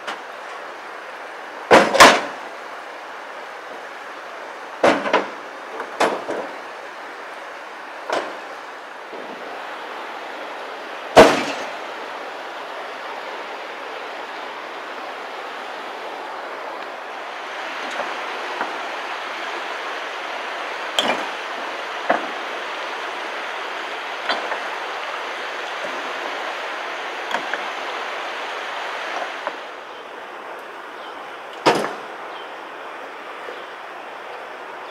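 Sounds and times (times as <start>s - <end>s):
shallow river water rushing: 0.0s - 34.9s
rocks knocking into steel truck bed: 1.7s - 2.4s, 4.8s - 6.5s, 11.2s - 11.7s, 31.6s - 32.0s.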